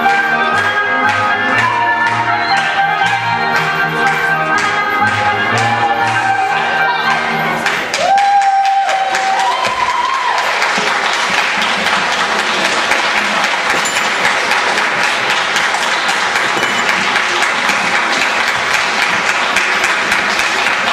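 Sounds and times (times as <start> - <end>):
audience applauding: 7.0 - 20.9.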